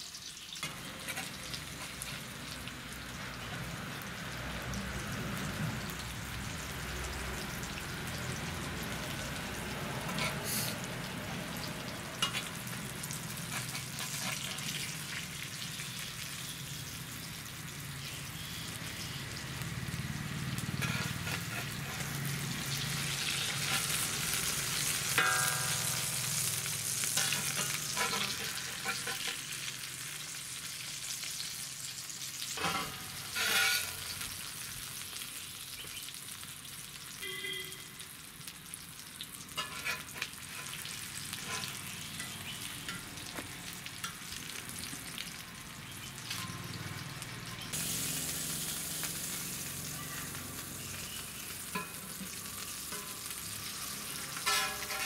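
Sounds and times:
fish sizzling in oil: 0.0s - 55.0s
metal spatula scraping pan: 0.6s - 2.3s, 10.1s - 10.8s, 12.2s - 14.9s, 20.7s - 29.7s, 32.5s - 34.5s, 39.6s - 43.0s, 51.6s - 55.0s.

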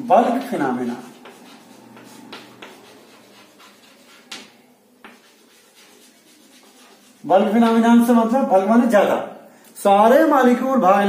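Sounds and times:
chalk scratching on blackboard: 0.2s - 8.1s
chalk tapping on board: 0.3s - 7.3s.

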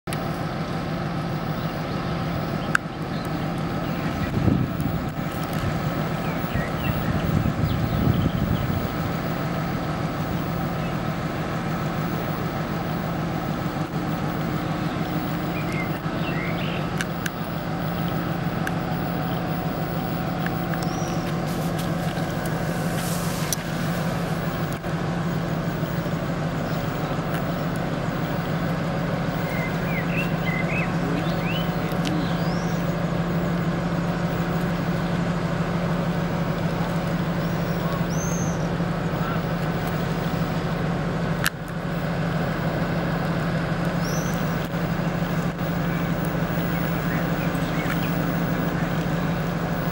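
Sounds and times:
diesel locomotive engine idling: 0.0s - 49.9s
birds chirping: 1.2s - 40.8s, 43.4s - 49.9s
brief high hiss: 21.4s - 24.5s.

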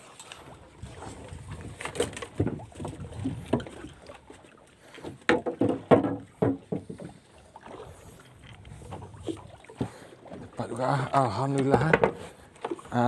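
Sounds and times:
knocks and thumps on a boat: 0.8s - 13.0s.

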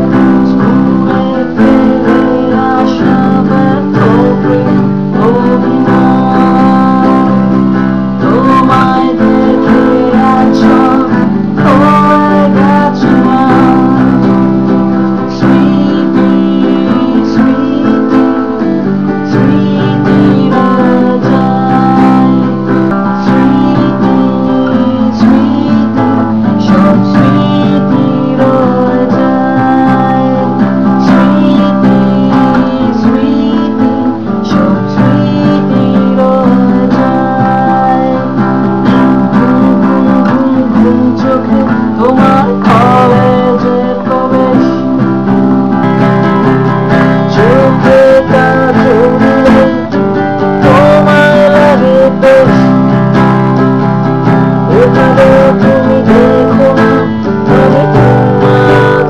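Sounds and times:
acoustic guitar strumming: 0.0s - 59.0s
man singing: 0.0s - 59.0s.

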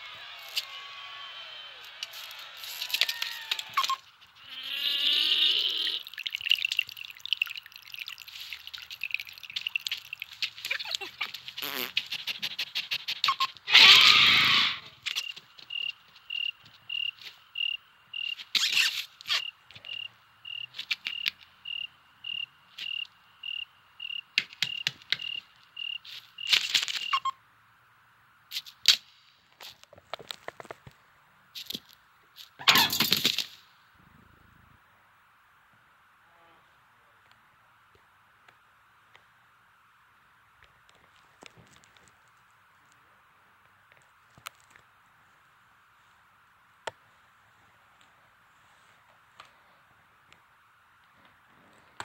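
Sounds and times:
chittering ticking insect sounds: 2.0s - 14.2s, 15.0s - 27.3s
cricket chirping: 2.1s - 27.4s
insect wing buzz: 8.3s - 27.2s
sharp clicks: 24.4s - 25.4s
scattered clicks: 24.4s - 27.2s.

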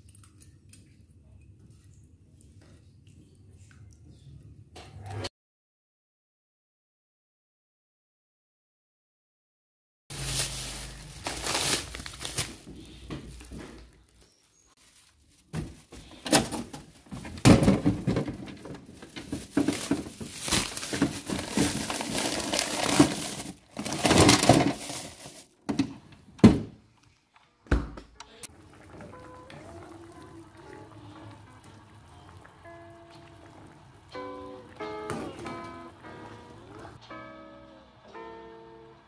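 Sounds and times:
plastic bags crinkling: 10.1s - 25.6s.

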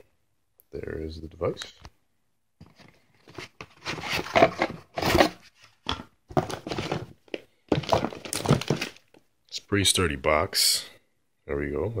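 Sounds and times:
cardboard and pulp packaging rustling: 2.6s - 9.2s.

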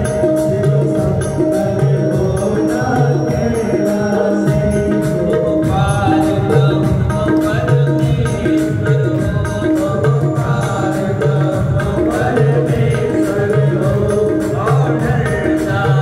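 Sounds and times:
devotional song over loudspeakers: 0.0s - 16.0s
hand-drum beat: 0.0s - 16.0s.

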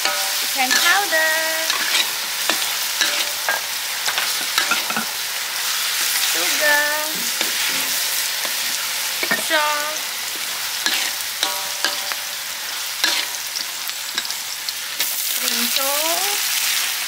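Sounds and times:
ladle clinking against wok: 0.0s - 5.2s, 10.9s - 12.4s
sauce sizzling in a wok: 0.0s - 17.0s.

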